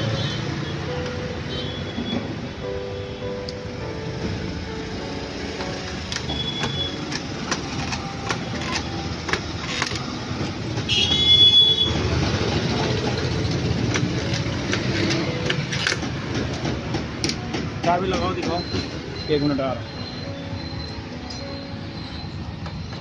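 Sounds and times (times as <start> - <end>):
street traffic rumble: 0.0 - 23.0
high-pitched tone: 18.4 - 23.0.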